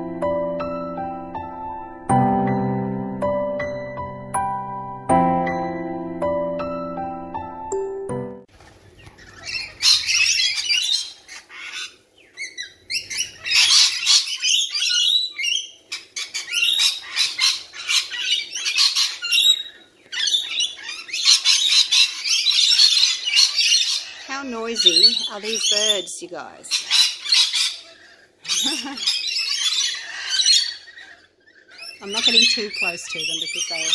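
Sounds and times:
parrots screeching and squawking: 0:08.6 - 0:33.9.

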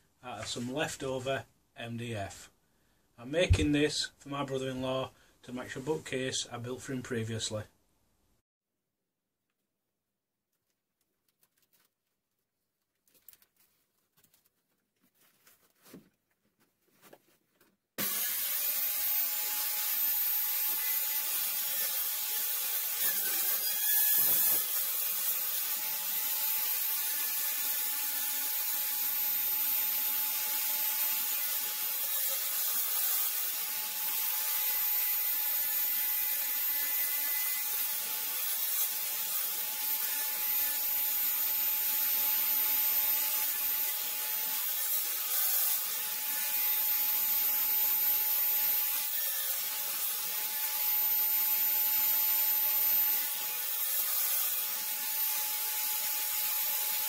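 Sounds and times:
table saw whining: 0:18.0 - 0:57.0.

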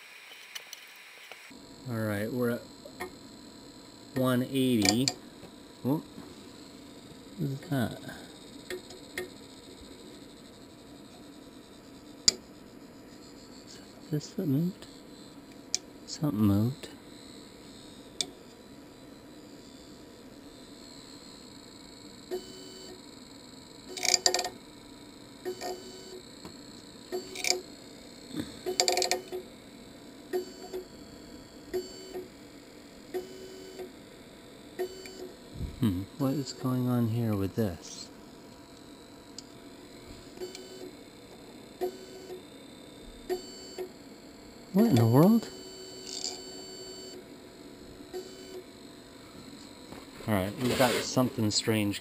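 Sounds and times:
printer clicks and buzzes: 0:04.1 - 0:05.2, 0:23.8 - 0:24.6, 0:25.4 - 0:27.7, 0:28.6 - 0:29.5, 0:40.3 - 0:42.5, 0:43.2 - 0:44.0, 0:44.8 - 0:47.2.

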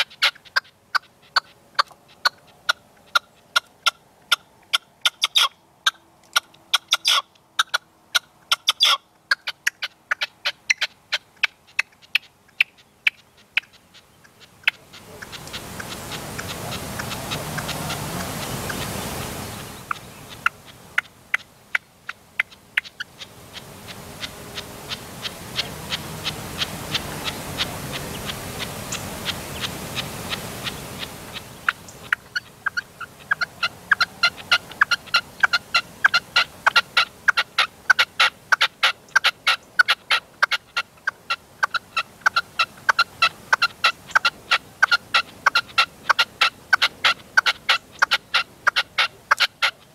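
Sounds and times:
partridge calling: 0:00.0 - 0:49.9
steady rushing noise: 0:14.8 - 0:21.0, 0:23.1 - 0:32.1.

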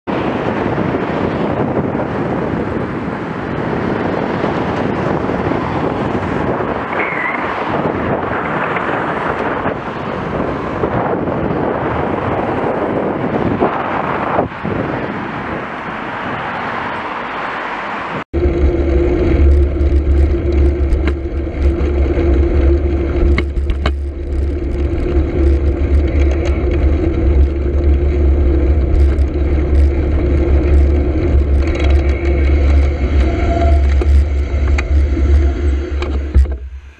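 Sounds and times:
wind and road noise: 0:00.0 - 0:36.9
low rumble with steady hum: 0:18.4 - 0:36.9.

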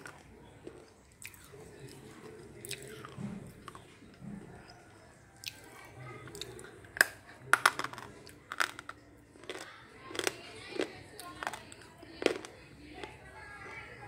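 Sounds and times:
crunching a slate pencil: 0:07.0 - 0:13.1.

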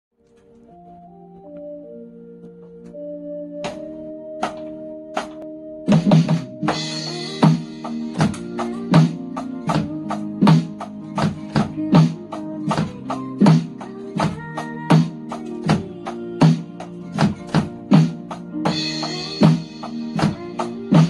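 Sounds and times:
electronic drum kit beat: 0:03.6 - 0:21.0
pop ballad with guitar: 0:06.7 - 0:21.0.

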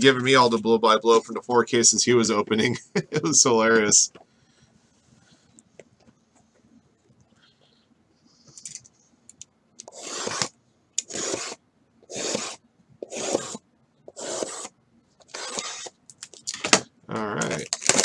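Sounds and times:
boxes scraping against each other: 0:09.9 - 0:16.0.

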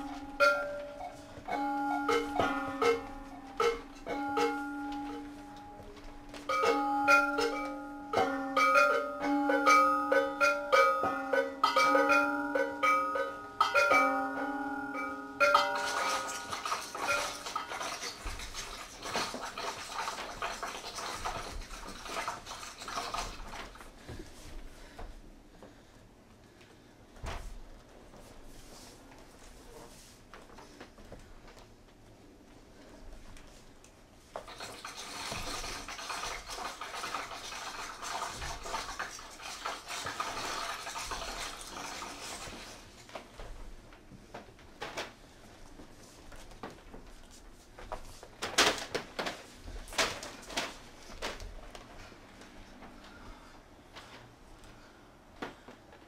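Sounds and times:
mallet instrument ringing tones: 0:00.0 - 0:17.4
objects scraping and rustling: 0:15.4 - 0:24.6.

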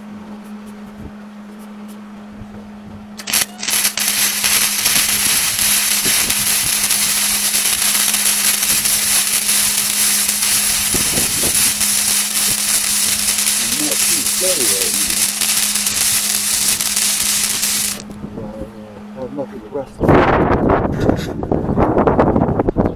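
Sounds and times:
welding arc crackling hiss: 0:03.2 - 0:18.2
welding rod sputtering: 0:03.2 - 0:18.2.

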